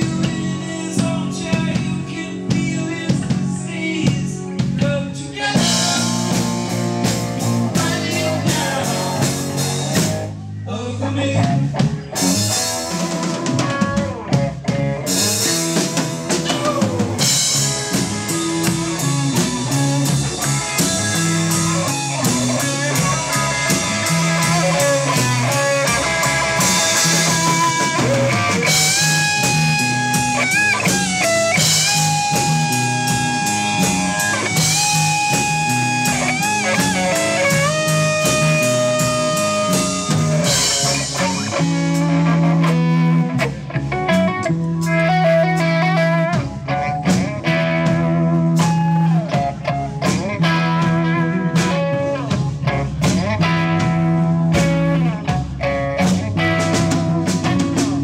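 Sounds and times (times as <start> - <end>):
rock music: 0.0 - 58.0
guitar bending long notes: 11.4 - 58.0.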